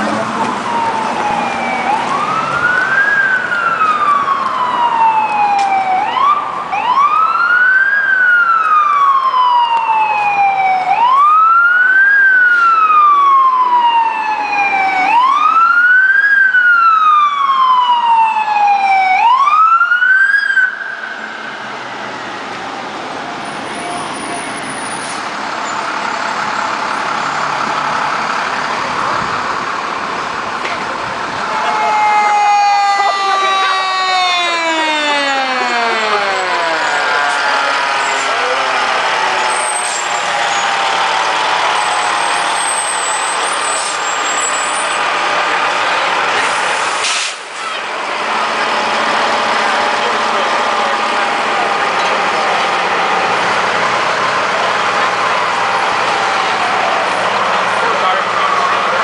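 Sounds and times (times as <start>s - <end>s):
fire engine siren wailing: 0.0s - 59.0s
steady engine noise: 33.3s - 59.0s.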